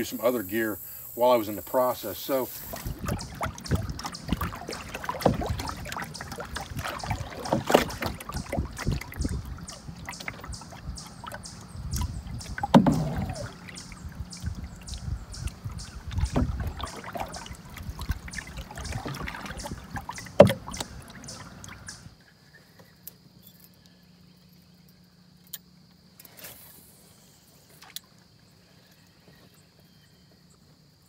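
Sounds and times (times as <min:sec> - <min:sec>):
insect drone: 0:00.0 - 0:31.0
water rushing along canoe hull: 0:01.2 - 0:22.2
paddle splashing: 0:01.5 - 0:22.2.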